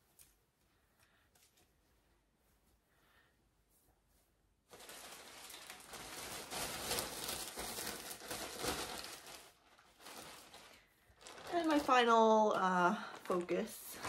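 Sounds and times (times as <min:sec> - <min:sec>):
crinkling and rustling: 0:03.8 - 0:14.0.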